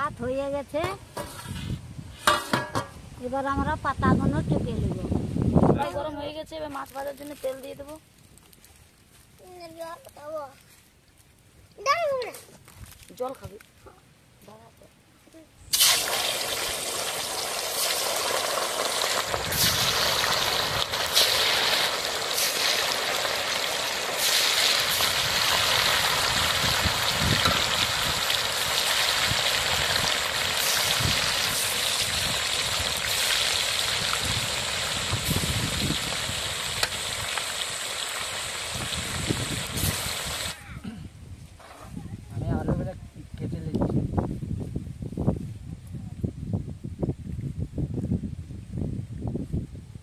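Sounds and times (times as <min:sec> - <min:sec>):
fish sizzling in hot oil: 0:15.7 - 0:40.6
oil popping and crackling: 0:15.7 - 0:40.6.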